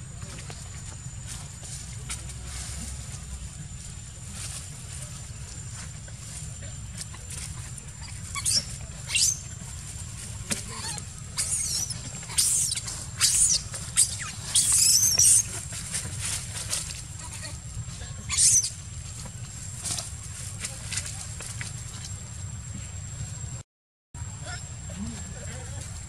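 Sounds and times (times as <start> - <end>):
monkey shrieking: 8.0 - 9.5, 10.6 - 15.7, 18.2 - 18.8.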